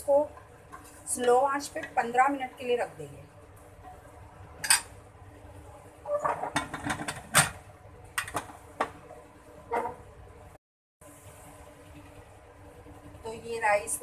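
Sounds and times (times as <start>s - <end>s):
metal lid clanking and scraping: 6.1s - 7.6s.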